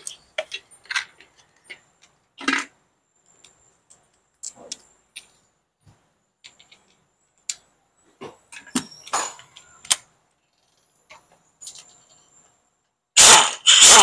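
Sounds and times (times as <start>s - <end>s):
metal tools clicking and knocking: 8.4s - 12.0s.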